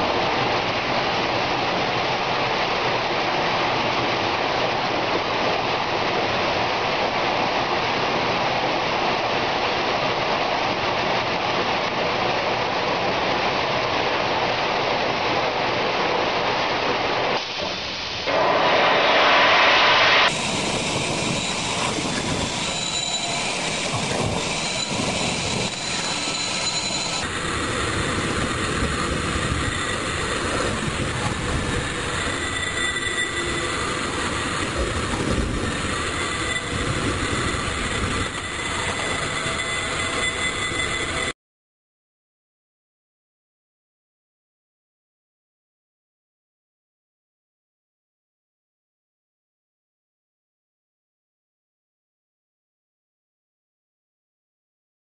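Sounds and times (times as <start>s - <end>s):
industrial vacuum rushing: 0.0s - 41.4s
machine noise: 0.0s - 41.4s.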